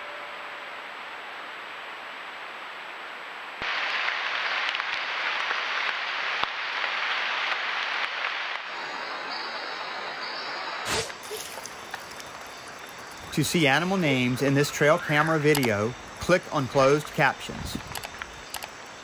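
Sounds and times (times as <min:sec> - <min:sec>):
thin high tone: 0:00.0 - 0:01.2, 0:08.7 - 0:17.0
hissing night jungle ambience: 0:00.0 - 0:19.0
faint clicks: 0:17.8 - 0:18.8.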